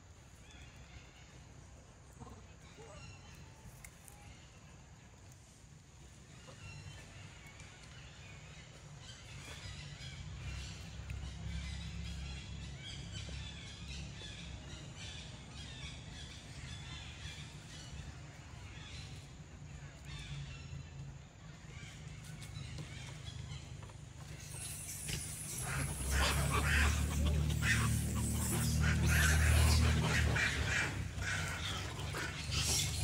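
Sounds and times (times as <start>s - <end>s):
birds chirping: 6.4s - 33.0s
birds cawing: 24.9s - 33.0s.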